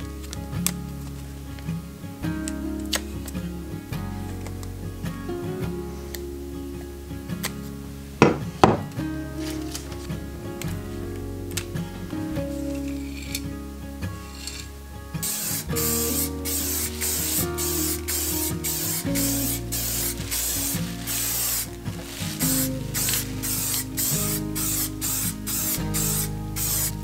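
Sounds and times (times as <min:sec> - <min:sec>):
aerosol spray can hissing: 0:15.2 - 0:27.0.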